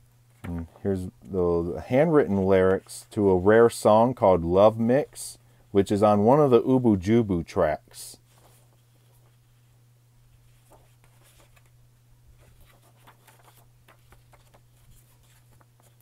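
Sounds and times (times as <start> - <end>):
low steady hum: 0.0 - 16.0
paper rustling and crinkling: 8.2 - 9.7, 10.3 - 16.0.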